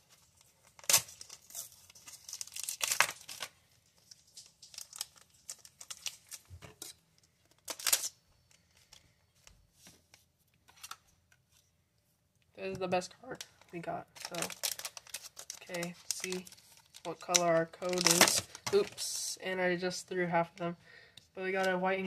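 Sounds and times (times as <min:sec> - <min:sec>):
foil wrapper tearing and crinkling: 0:00.0 - 0:08.6, 0:14.1 - 0:19.0.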